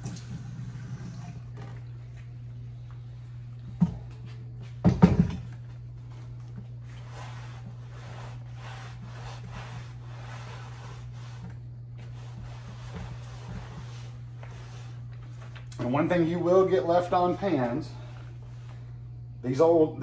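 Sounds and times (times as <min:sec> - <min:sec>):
sponge scrubbing iron skillet: 0:07.0 - 0:15.0.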